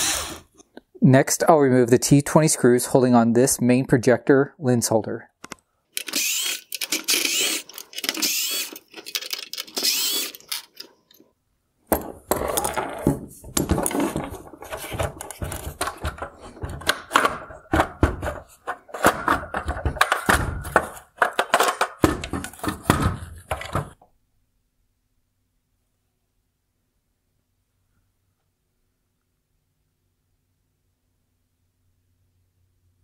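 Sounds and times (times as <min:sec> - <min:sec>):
cordless screwdriver running: 0:00.0 - 0:00.5, 0:06.0 - 0:08.9, 0:09.6 - 0:10.8
plastic parts clicking and clattering: 0:05.4 - 0:11.3, 0:11.9 - 0:24.0.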